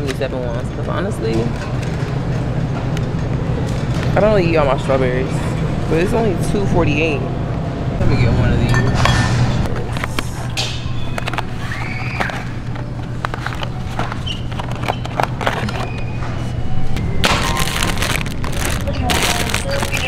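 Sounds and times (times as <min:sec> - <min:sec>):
steady low hum: 0:00.0 - 0:19.8
packages handled with clicks and knocks: 0:09.8 - 0:20.0
plastic packaging crackling: 0:17.2 - 0:20.0.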